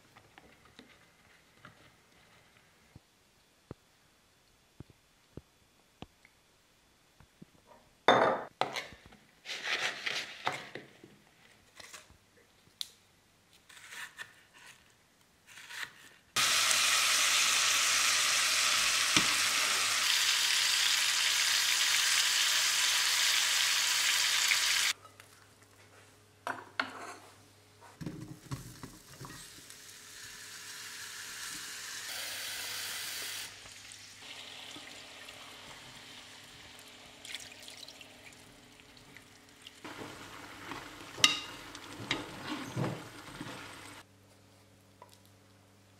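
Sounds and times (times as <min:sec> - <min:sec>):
food stirred in sizzling pan: 0:16.4 - 0:25.0, 0:39.7 - 0:44.0
meat sizzling in a pan: 0:16.4 - 0:25.0, 0:29.0 - 0:37.1.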